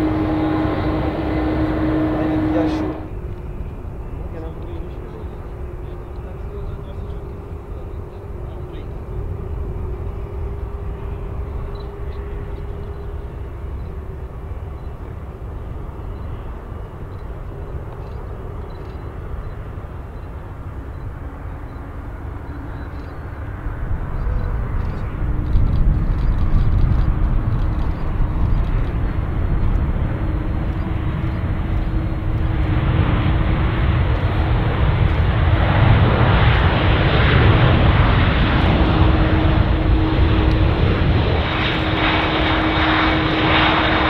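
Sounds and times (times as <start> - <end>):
aircraft engine: 0.0 - 44.0
steady hum: 0.0 - 44.0.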